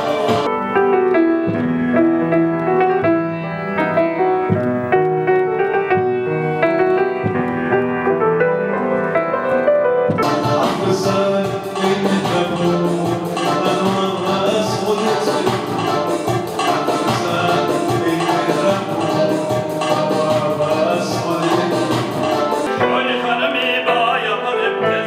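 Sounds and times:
grand piano melody: 0:00.0 - 0:25.0
accompanying instruments: 0:10.1 - 0:25.0.

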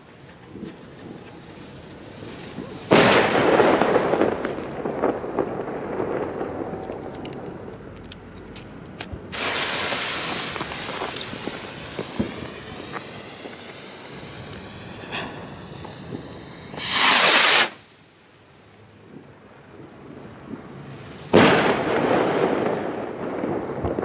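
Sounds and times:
firework crackling: 0:00.0 - 0:24.0
firework rocket whoosh: 0:00.5 - 0:07.5, 0:09.2 - 0:18.1, 0:20.6 - 0:24.0
firework bang with echo: 0:02.5 - 0:06.7, 0:09.3 - 0:17.8, 0:21.3 - 0:24.0.

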